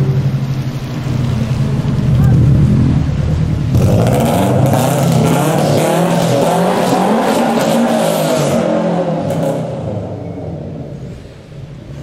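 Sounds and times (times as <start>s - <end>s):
car engine revving and accelerating: 0.0s - 12.0s.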